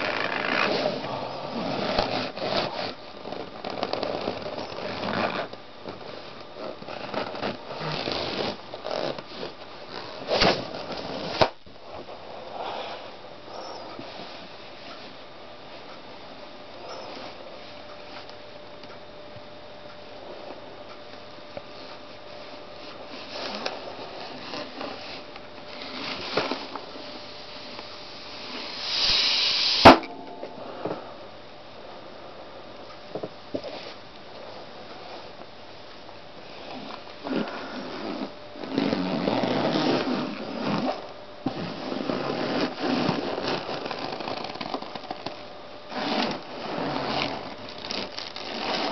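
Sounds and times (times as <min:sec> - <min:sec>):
balloons squeaking and rubbing: 0:00.0 - 0:11.5, 0:22.8 - 0:27.2, 0:37.3 - 0:41.0, 0:41.6 - 0:45.2, 0:45.9 - 0:48.9
balloon squeaking and rubbing: 0:06.6 - 0:11.5, 0:45.9 - 0:48.9
hiss: 0:27.0 - 0:30.0
balloon bursting pop: 0:29.8 - 0:30.2.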